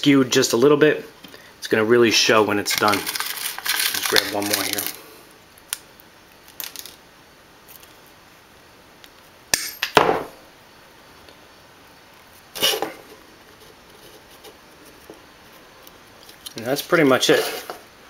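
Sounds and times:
short scrape: 12.6 - 13.0, 17.3 - 17.8.

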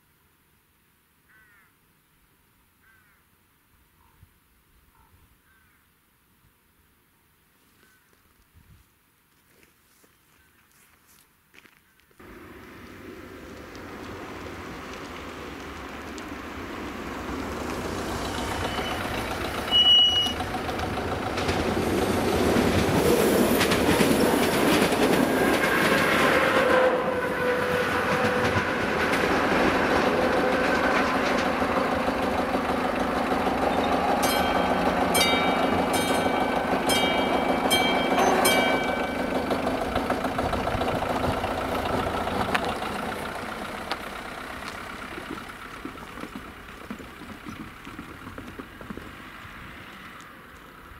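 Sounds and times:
passenger train passing: 12.2 - 46.8
wheels clicking and ringing: 13.6 - 26.2, 28.2 - 49.8
high-pitched train horn toot: 18.6 - 20.4, 25.8 - 29.0.

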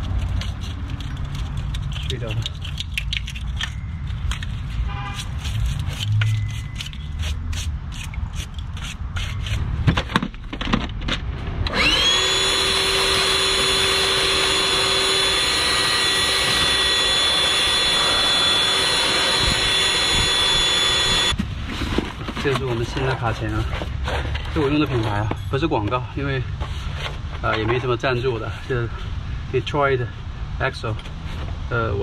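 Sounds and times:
metal clicks knocks and scrapes: 0.0 - 11.3
power tool spinning: 11.7 - 21.4.

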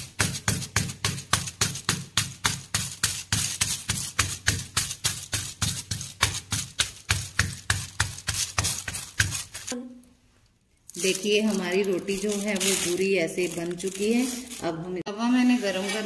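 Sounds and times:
palm patting dough: 0.0 - 9.8.

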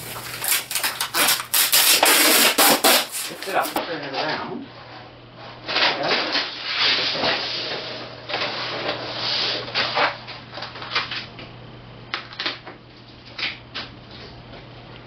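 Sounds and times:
plastic sheet rustling: 0.0 - 4.3, 5.6 - 11.3
steady low hum: 0.0 - 15.0.

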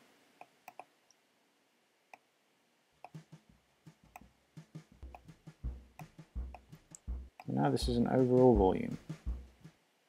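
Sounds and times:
computer mouse clicking: 0.6 - 0.9
low thumps: 4.0 - 9.7.

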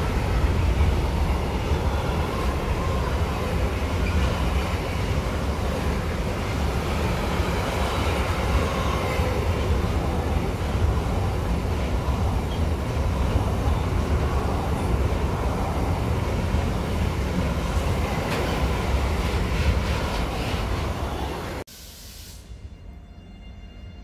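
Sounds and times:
freight train wheels rumbling: 0.0 - 21.7
brief hiss: 21.7 - 22.8.

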